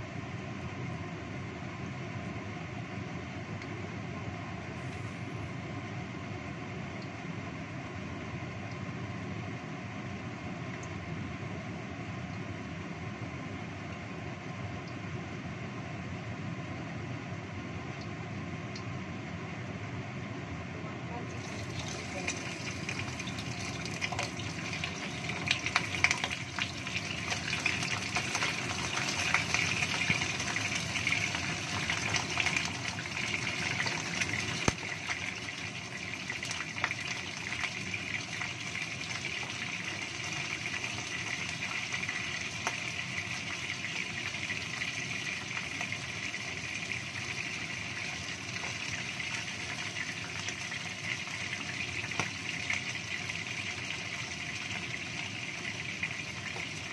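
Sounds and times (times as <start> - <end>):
fish frying in hot oil: 21.3 - 56.9
oil popping and crackling: 21.3 - 56.9.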